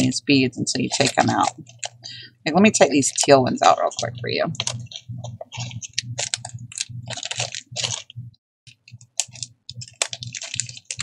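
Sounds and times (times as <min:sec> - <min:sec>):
plastic bag crinkling: 0:00.7 - 0:02.2, 0:03.0 - 0:08.1, 0:08.8 - 0:11.0
glass beads clicking: 0:08.8 - 0:11.0.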